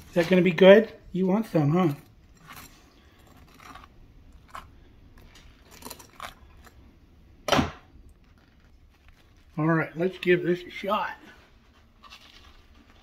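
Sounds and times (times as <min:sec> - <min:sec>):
knife scraping butter on bread: 0:01.9 - 0:06.7.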